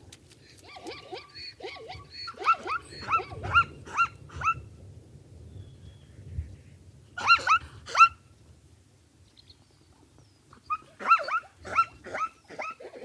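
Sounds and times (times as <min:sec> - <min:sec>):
zebra barking: 0:10.7 - 0:13.0.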